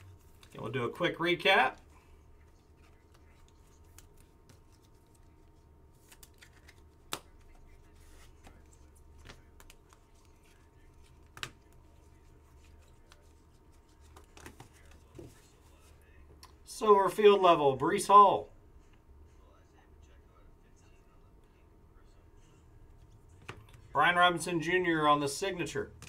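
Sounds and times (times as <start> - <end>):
faint hum: 0.0 - 26.0
trading cards rustling and sliding: 1.8 - 16.0.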